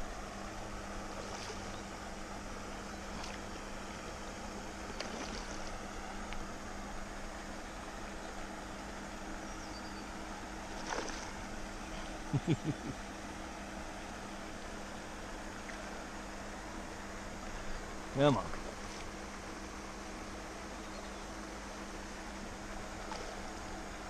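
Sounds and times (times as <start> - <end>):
water and wind noise: 0.0 - 20.7, 21.4 - 24.0
steady low hum: 0.0 - 24.0
fish splashing at surface: 5.0 - 5.7.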